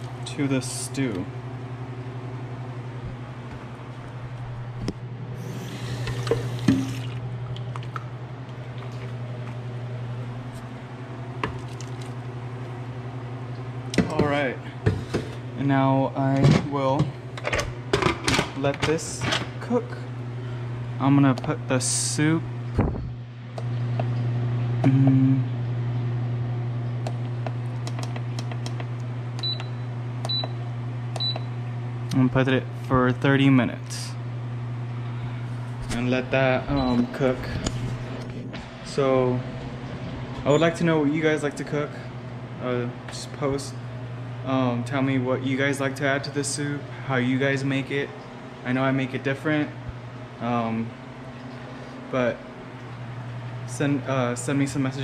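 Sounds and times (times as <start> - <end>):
steady low hum: 0.0 - 55.0
faucet running into plastic cup: 5.4 - 7.2
control panel beeping: 29.4 - 30.6, 31.2 - 31.5, 36.7 - 37.1.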